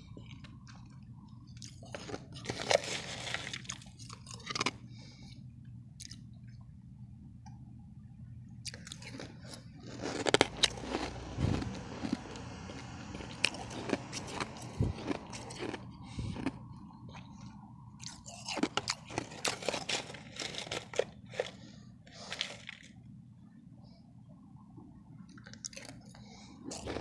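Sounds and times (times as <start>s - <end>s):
steady low hum: 0.0s - 27.0s
ice crunching as chewed: 0.1s - 4.9s, 6.0s - 6.2s, 8.6s - 23.0s, 25.4s - 27.0s.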